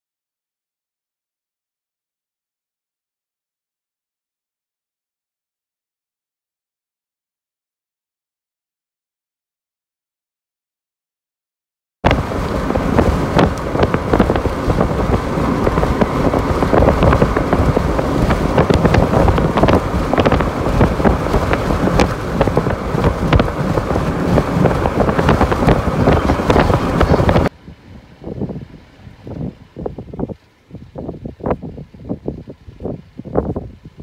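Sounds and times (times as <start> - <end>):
wind buffeting microphone: 12.0 - 34.0.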